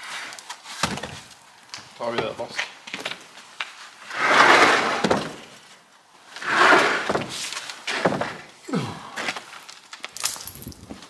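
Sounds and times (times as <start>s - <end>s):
wooden pallets scraping on concrete: 3.7s - 8.5s.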